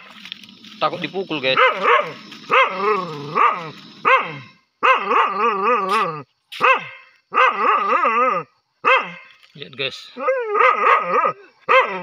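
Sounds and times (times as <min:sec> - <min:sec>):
dog barking and baying: 0:01.5 - 0:09.3, 0:10.1 - 0:12.0.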